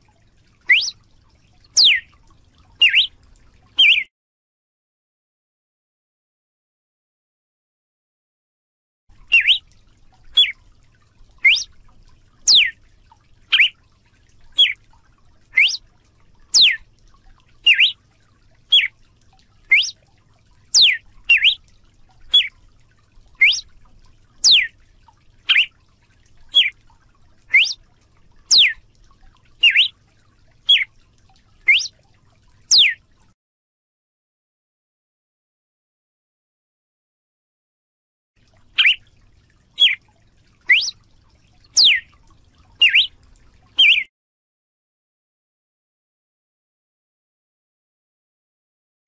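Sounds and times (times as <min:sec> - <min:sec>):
bird singing short clear notes: 0:00.7 - 0:01.0, 0:01.8 - 0:02.1, 0:02.8 - 0:03.1, 0:03.8 - 0:04.1, 0:09.3 - 0:09.6, 0:10.4 - 0:10.6, 0:11.4 - 0:11.7, 0:12.5 - 0:12.8, 0:13.5 - 0:13.8, 0:14.6 - 0:14.8, 0:15.6 - 0:15.8, 0:16.5 - 0:16.8, 0:17.6 - 0:18.0, 0:18.7 - 0:18.9, 0:19.7 - 0:20.0, 0:20.7 - 0:21.6, 0:22.3 - 0:22.5, 0:23.4 - 0:23.7, 0:24.4 - 0:24.7, 0:25.5 - 0:25.7, 0:26.5 - 0:26.7, 0:27.5 - 0:27.8, 0:28.5 - 0:28.8, 0:29.6 - 0:29.9, 0:30.7 - 0:30.9, 0:31.7 - 0:31.9, 0:32.7 - 0:33.0, 0:38.8 - 0:39.0, 0:39.8 - 0:40.0, 0:40.7 - 0:41.0, 0:41.8 - 0:42.1, 0:42.8 - 0:43.1, 0:43.8 - 0:44.1.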